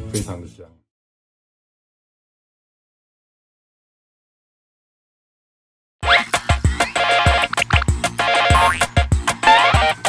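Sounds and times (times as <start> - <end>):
upbeat electronic jingle: 7.3 - 8.9.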